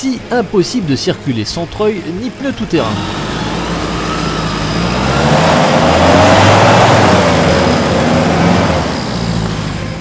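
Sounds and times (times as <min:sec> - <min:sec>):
off-road vehicle engine revving: 0:02.4 - 0:10.0.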